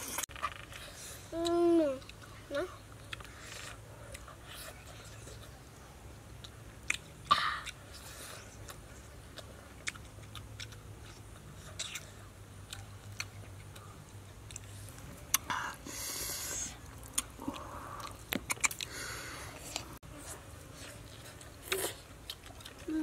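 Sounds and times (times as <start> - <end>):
people chewing food: 0.0 - 23.0
wet lip smacks: 17.1 - 19.0.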